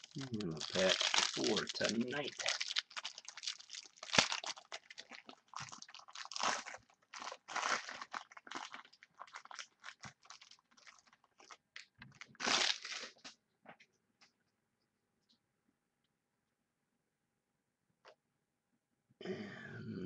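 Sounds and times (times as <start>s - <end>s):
card pack wrapper crinkling: 0.0s - 13.3s.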